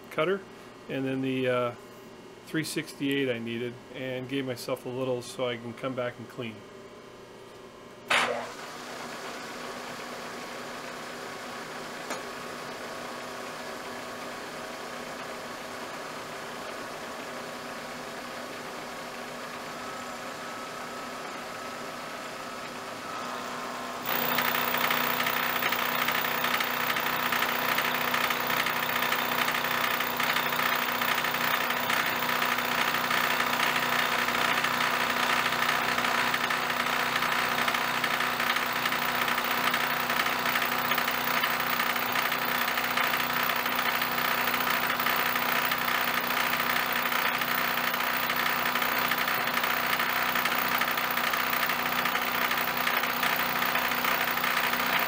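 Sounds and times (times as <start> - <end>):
milling machine cutting metal: 24.0 - 55.0.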